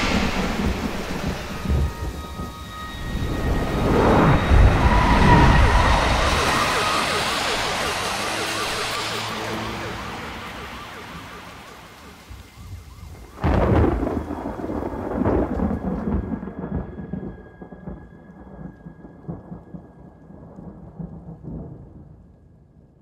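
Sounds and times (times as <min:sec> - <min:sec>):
heavy rain: 0:00.0 - 0:22.2
thunder rumbling: 0:00.0 - 0:22.4
faint steady high tone: 0:00.2 - 0:13.3.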